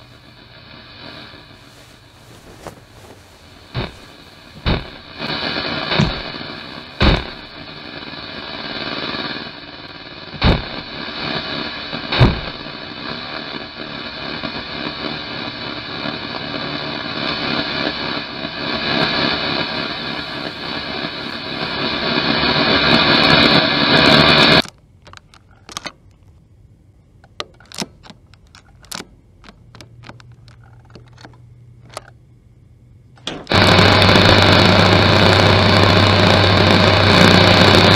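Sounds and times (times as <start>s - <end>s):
low hum: 0.0s - 9.8s, 16.9s - 23.6s, 28.2s - 37.9s
dense noisy drone: 0.0s - 37.9s
scattered clicks: 24.6s - 26.4s, 27.2s - 32.2s.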